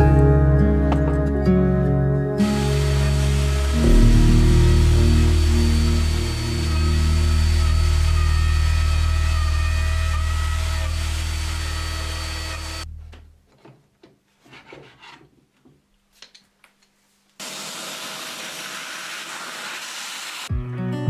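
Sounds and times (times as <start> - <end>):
router droning and whining: 2.4 - 12.9
faint rubbing and handling: 14.2 - 15.6.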